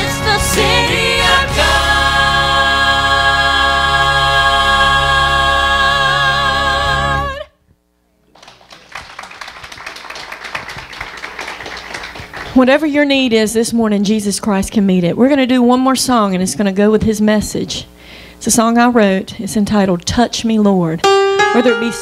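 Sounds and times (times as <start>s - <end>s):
voices singing gospel harmony: 0.0s - 7.5s
scattered applause: 8.3s - 12.6s.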